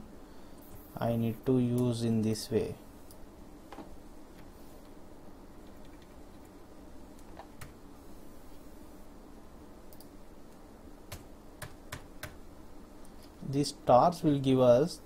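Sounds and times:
low room hum: 0.0 - 15.0
computer keys and mouse clicking: 5.6 - 6.2, 9.9 - 10.2.

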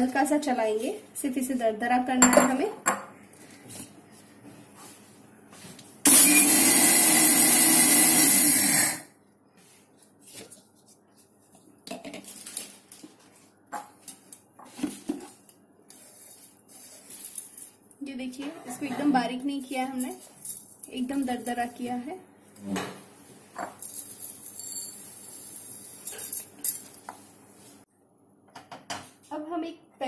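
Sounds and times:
mixer grinder grinding seeds: 6.1 - 9.1.

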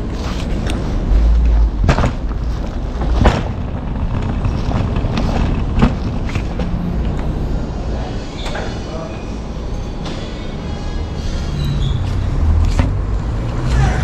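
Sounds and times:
suitcase wheels rumbling: 0.0 - 8.1
suitcase knocks: 1.7 - 6.7.

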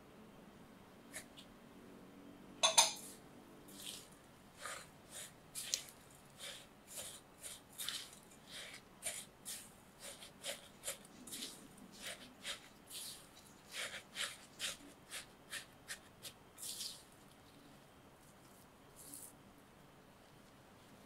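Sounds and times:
spoon knock on glass bowl: 2.6 - 3.0
spoon scraping gritty crumbs: 3.7 - 17.4, 18.2 - 19.4.

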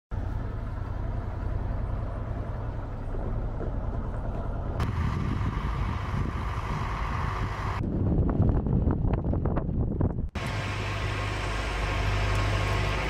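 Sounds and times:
jet engines rumbling: 0.6 - 13.0
high whine: 4.0 - 8.6.

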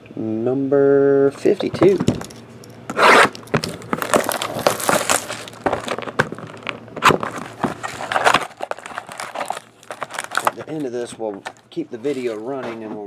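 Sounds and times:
plastic shrink wrap crinkling: 3.2 - 12.6.

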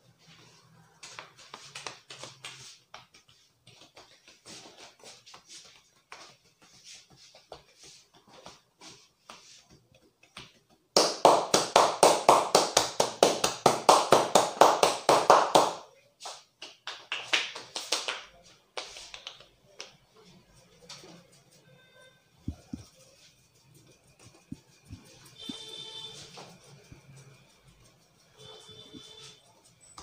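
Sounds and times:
hands slapping head: 10.2 - 20.0.

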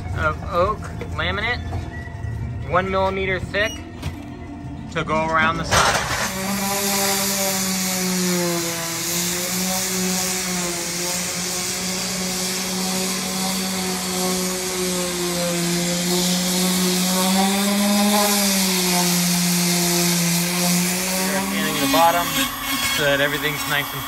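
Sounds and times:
orbital sander on wood: 5.8 - 24.0.

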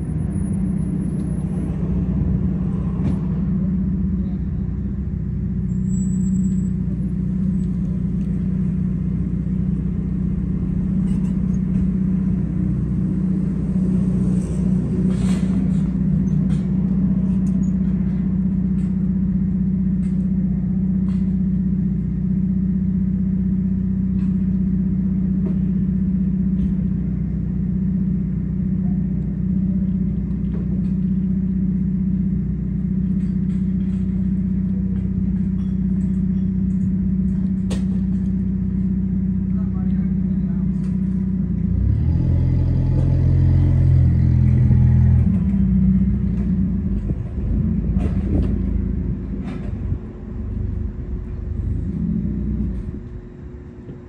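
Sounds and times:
steady mechanical hum: 0.0 - 54.0
low rumble: 43.0 - 54.0.

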